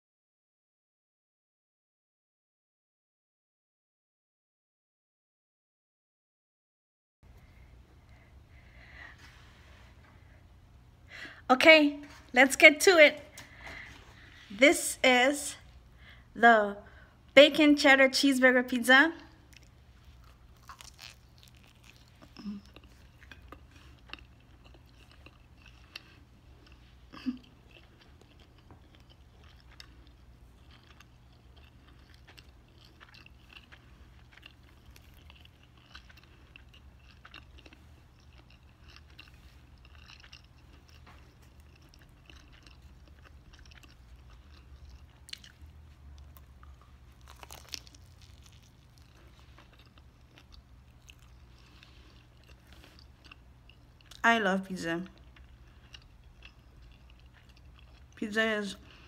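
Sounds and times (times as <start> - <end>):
chewing pizza crust: 19.3 - 54.3, 55.0 - 58.2.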